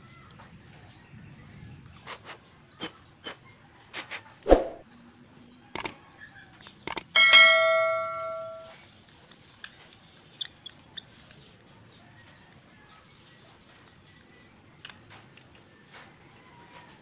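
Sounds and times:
light ticks of metal tool: 6.9s - 8.7s
metal tool striking metal bowl: 6.9s - 8.7s.

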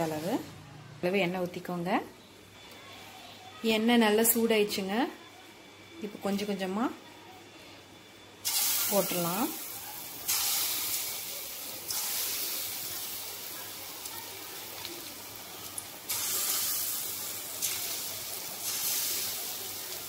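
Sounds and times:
batter sizzling in hot oil: 8.4s - 20.0s.

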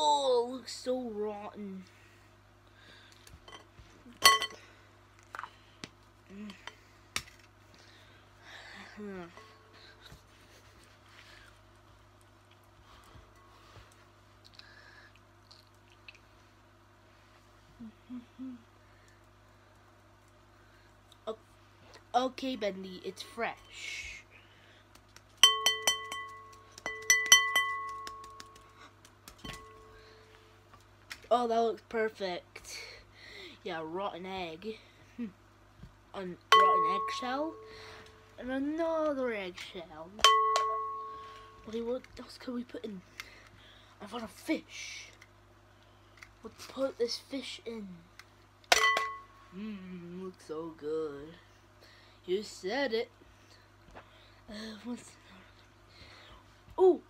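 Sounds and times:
glass bowl and sieve clinking: 25.4s - 28.3s
glass bowl clinking and ringing: 25.4s - 28.3s, 36.5s - 37.8s, 40.2s - 41.6s, 48.8s - 49.4s.

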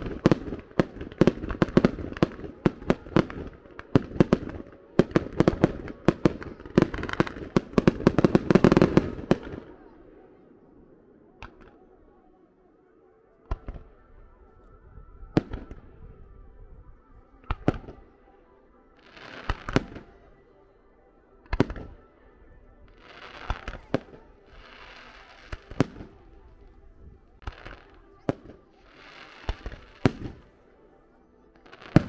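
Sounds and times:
fireworks bangs: 0.0s - 10.3s, 19.0s - 20.2s
fireworks crackling: 0.0s - 10.4s, 19.0s - 20.3s, 21.4s - 22.0s, 22.9s - 30.8s, 31.5s - 32.0s.

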